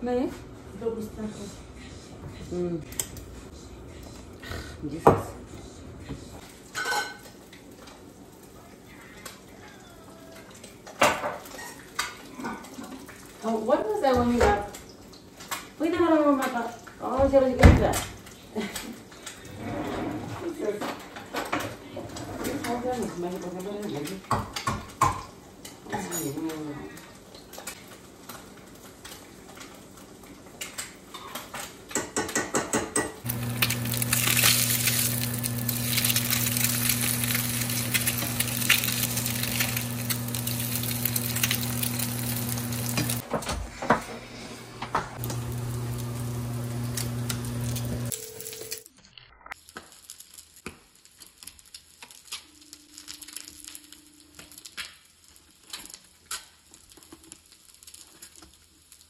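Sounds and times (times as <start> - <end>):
dishes and utensils clinking: 6.7 - 7.6.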